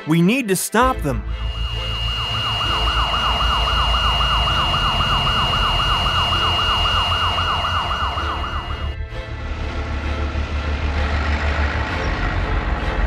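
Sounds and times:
steady high tone: 1.0s - 9.0s
police siren wailing: 1.3s - 9.0s.

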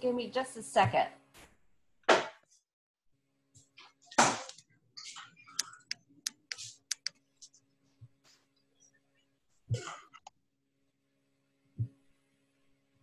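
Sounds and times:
person coughing: 9.7s - 10.3s.

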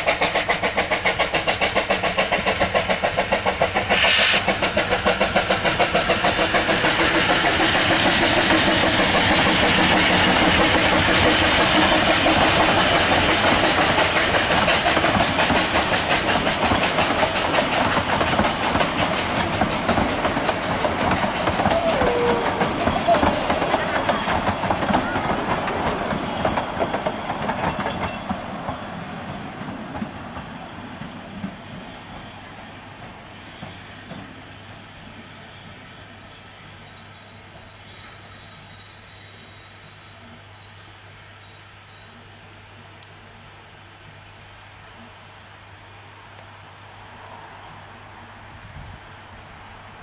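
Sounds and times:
steam hiss: 0.0s - 40.0s
steam locomotive chuffing: 0.0s - 40.0s
carriages rolling past: 3.2s - 38.4s.

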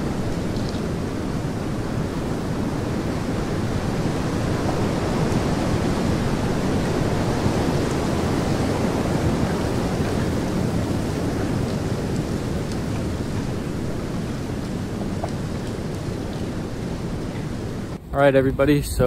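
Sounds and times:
blizzard wind: 0.0s - 19.0s.

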